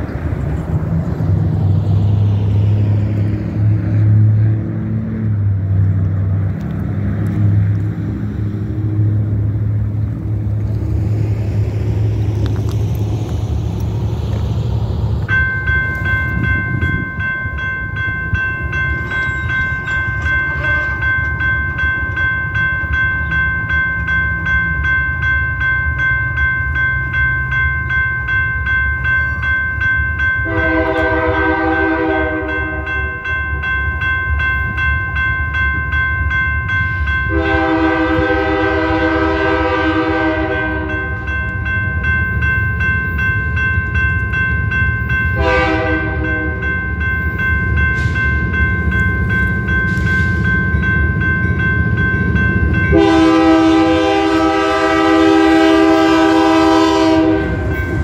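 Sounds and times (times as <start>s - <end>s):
crossing warning bell ringing: 15.2s - 58.0s
locomotive air horn blasts: 20.4s - 21.1s, 30.4s - 33.1s, 37.3s - 41.2s, 45.4s - 46.7s, 52.9s - 57.8s.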